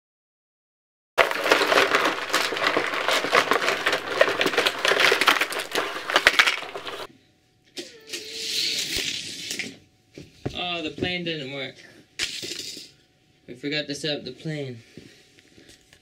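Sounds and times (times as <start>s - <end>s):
plastic toy pieces clattering: 1.2s - 7.1s.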